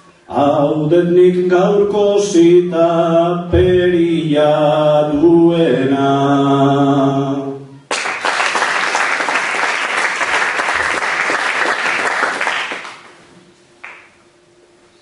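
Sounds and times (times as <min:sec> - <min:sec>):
audience applause: 0:07.9 - 0:13.2, 0:13.8 - 0:14.1.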